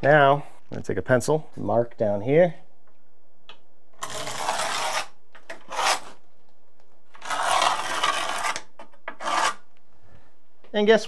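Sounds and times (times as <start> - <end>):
pencil scratching on concrete: 4.0 - 6.2, 7.2 - 9.7.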